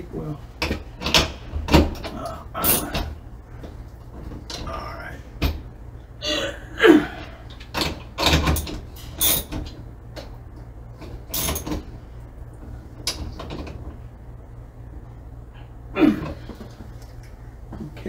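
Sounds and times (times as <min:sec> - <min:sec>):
tools and metal hardware clanking: 0:07.8 - 0:09.7, 0:11.3 - 0:11.8.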